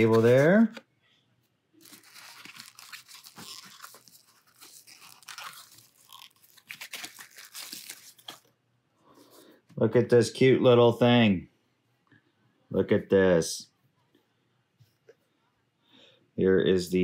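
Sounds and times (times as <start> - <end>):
plastic wrapping and cardboard crinkling: 0.0 - 0.8, 1.8 - 8.5.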